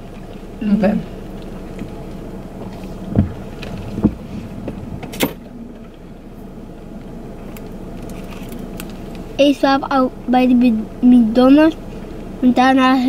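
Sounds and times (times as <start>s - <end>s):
low hum inside car cabin: 0.0s - 13.0s
soft knocks: 2.6s - 5.2s.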